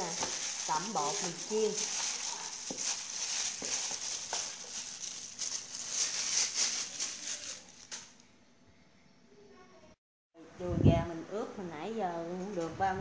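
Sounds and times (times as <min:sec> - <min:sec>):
wet squishing of meat: 0:00.0 - 0:08.0
plastic glove crinkling: 0:00.0 - 0:08.2.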